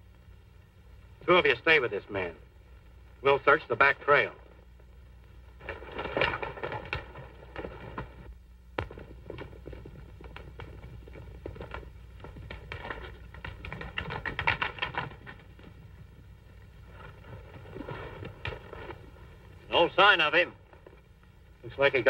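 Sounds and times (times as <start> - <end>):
horse hooves clattering: 5.5 - 22.0.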